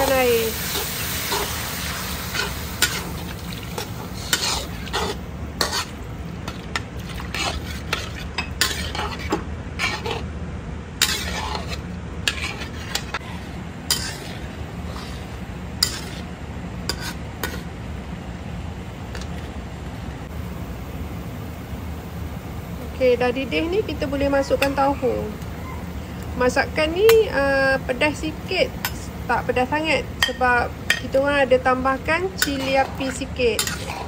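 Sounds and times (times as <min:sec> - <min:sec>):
metal ladle scraping wok: 0:00.0 - 0:10.3, 0:11.0 - 0:17.7, 0:32.1 - 0:34.0
faint sizzle: 0:00.0 - 0:10.4, 0:20.2 - 0:34.0.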